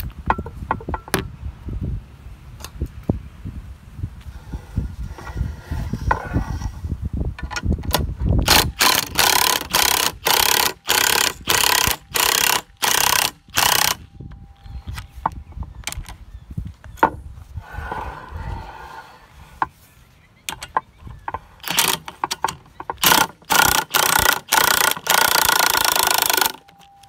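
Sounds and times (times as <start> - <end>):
tool clicks and knocks: 20.5 - 26.9
ratchet wrench clicking: 21.6 - 26.6.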